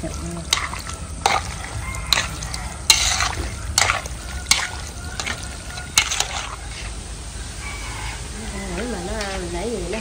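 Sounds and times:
utensils clinking against pot: 0.5 - 6.9.

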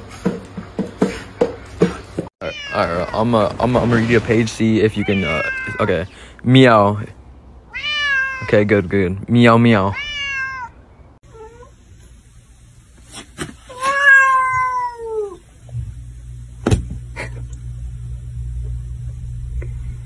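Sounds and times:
cat meowing: 2.4 - 3.0, 5.0 - 6.0, 7.7 - 8.5, 9.9 - 11.7, 13.7 - 15.4
steady low hum: 15.4 - 20.0.

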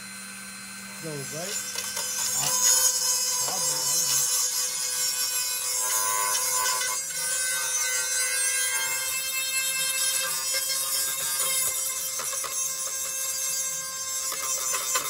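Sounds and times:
rotary tool grinding metal: 0.8 - 15.0.

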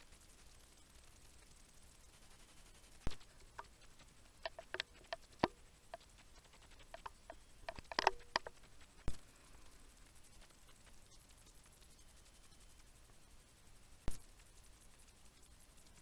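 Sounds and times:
light clicks and taps: 2.9 - 12.0.

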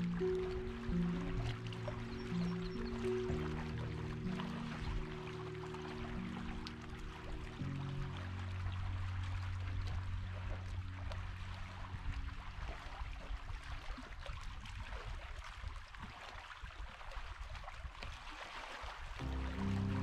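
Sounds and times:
soft background music: 0.0 - 13.2, 19.2 - 20.0
water flowing: 0.0 - 15.1, 19.2 - 20.0.

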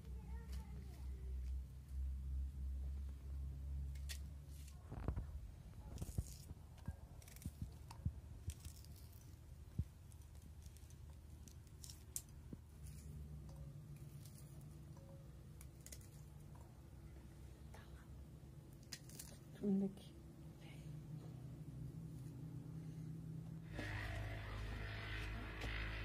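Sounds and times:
onion skin crackling: 5.8 - 16.9, 18.6 - 19.6.

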